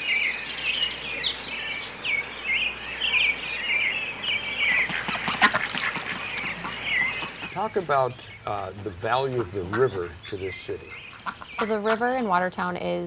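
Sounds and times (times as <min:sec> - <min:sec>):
ducklings peeping: 0:00.0 - 0:12.5
harsh duckling calls: 0:02.2 - 0:12.4.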